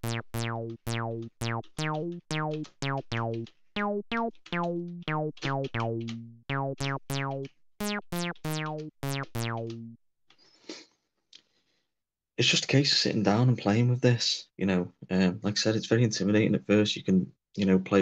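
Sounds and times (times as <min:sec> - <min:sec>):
plucky synth notes: 0:00.0 - 0:10.0.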